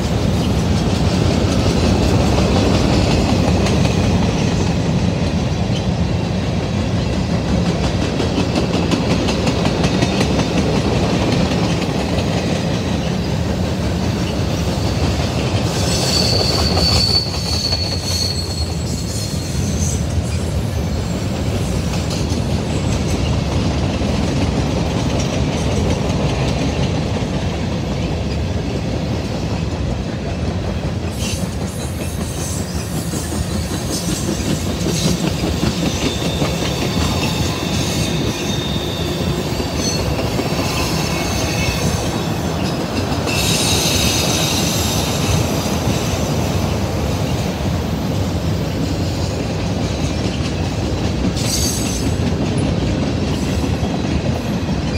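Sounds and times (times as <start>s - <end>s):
wheels rumbling on rail: 0.0s - 54.9s
high-pitched wheel squeal: 15.7s - 20.5s, 35.8s - 42.4s, 43.3s - 45.4s.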